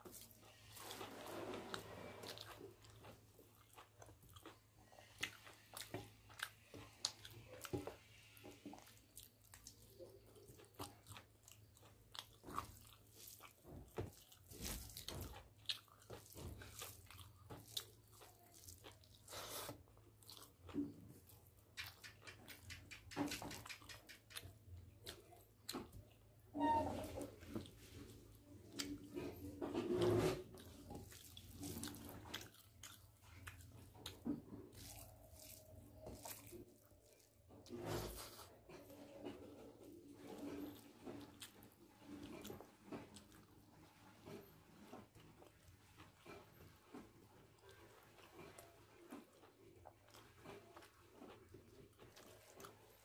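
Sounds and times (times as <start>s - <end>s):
person chewing food: 0.0s - 53.0s
fingers mixing rice on a plate: 27.4s - 43.4s.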